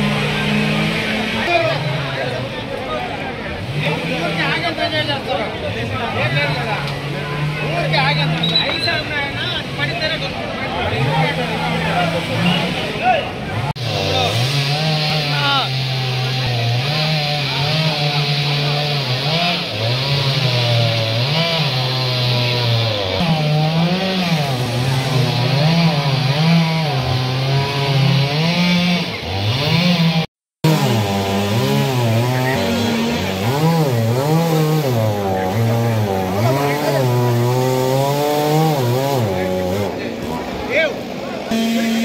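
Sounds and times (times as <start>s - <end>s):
chainsaw cutting wood: 0.0s - 2.2s, 13.7s - 42.0s.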